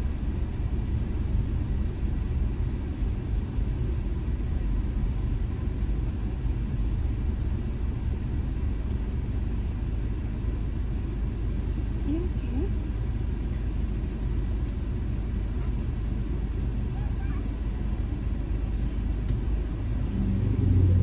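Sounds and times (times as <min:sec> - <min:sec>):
car engine and tyres rumbling: 0:00.0 - 0:21.0.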